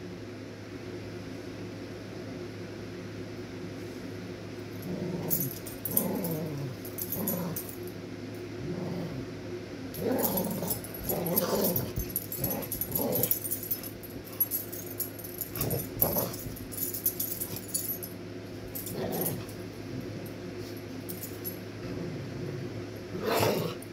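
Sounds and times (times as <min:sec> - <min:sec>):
dogs growling: 0:04.8 - 0:07.8, 0:08.6 - 0:18.0, 0:18.8 - 0:20.4, 0:21.1 - 0:23.9.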